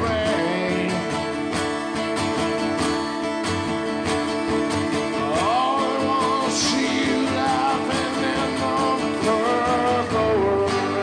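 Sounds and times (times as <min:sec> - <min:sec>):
man singing wordless melody: 0:00.0 - 0:01.4, 0:05.1 - 0:11.0
acoustic guitar strumming: 0:00.0 - 0:11.0.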